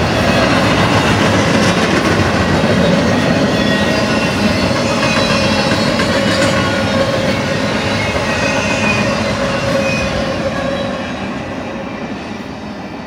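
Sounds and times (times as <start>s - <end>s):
freight train wheels on rails: 0.0s - 13.0s
high wheel squeals: 2.7s - 13.0s.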